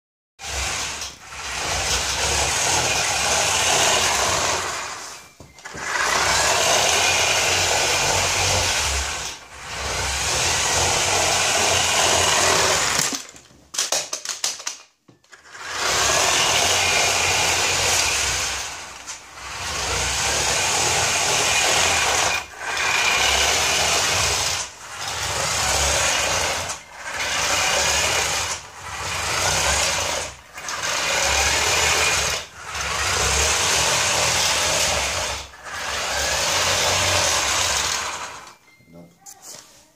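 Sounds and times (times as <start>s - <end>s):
small electric motor whirring: 15.4s - 38.6s.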